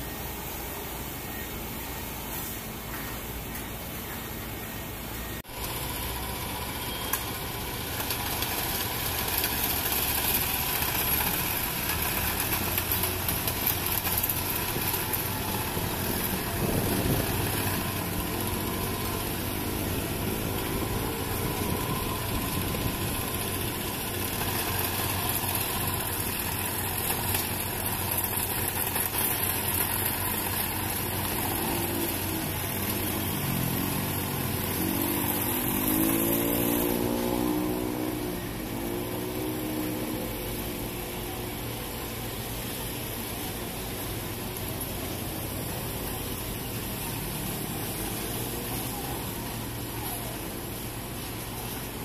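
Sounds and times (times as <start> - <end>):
diesel machinery engines running: 0.0 - 52.0
engine revving up and down: 31.0 - 41.4.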